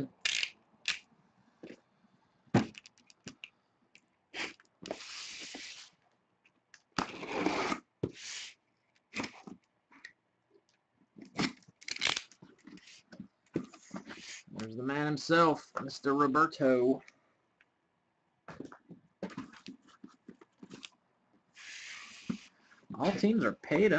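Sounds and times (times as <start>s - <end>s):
packing tape tearing: 0.2s - 1.0s, 11.4s - 13.0s.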